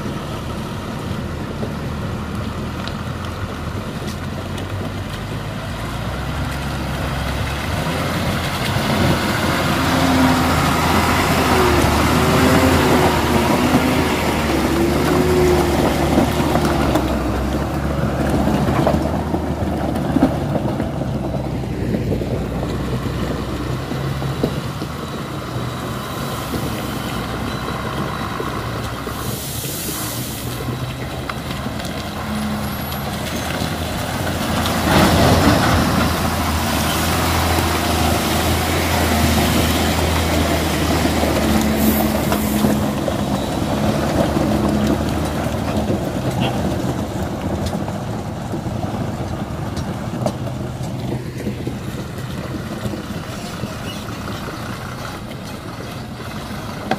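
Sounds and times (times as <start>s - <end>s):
diesel truck engines running: 0.0s - 56.9s
air brake hiss: 29.2s - 30.6s.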